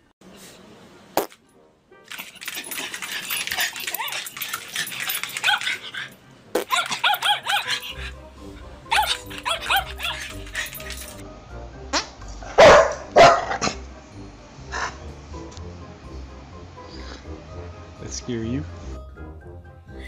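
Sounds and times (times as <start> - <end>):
dog yipping: 3.0 - 8.1, 8.9 - 11.2
dog barking: 6.6 - 8.1, 8.9 - 10.9, 12.6 - 13.8
background music: 6.6 - 20.0.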